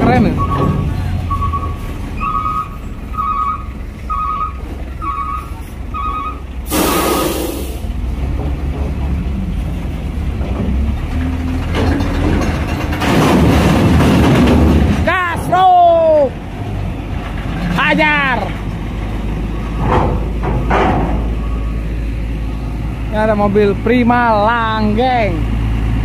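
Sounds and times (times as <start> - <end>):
truck engines running: 0.0 - 26.0
vehicle warning beeper: 0.1 - 7.7
air brake hiss: 6.6 - 7.9.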